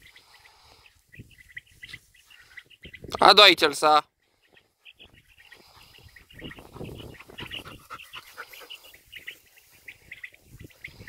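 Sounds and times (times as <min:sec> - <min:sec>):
faint bird chirps: 0:04.2 - 0:11.0
dog panting: 0:06.6 - 0:08.9.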